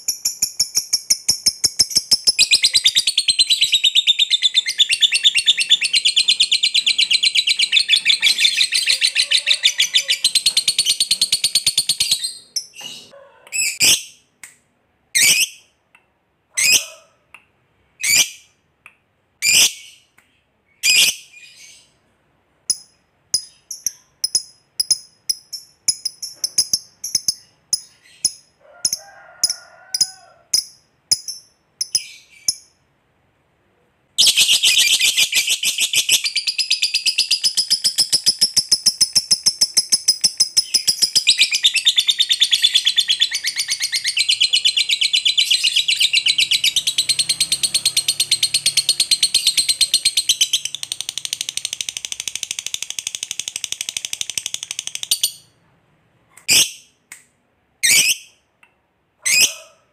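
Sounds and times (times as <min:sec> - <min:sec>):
lovebird shrieks and chirps: 0:08.2 - 0:10.4, 0:59.2 - 0:59.6.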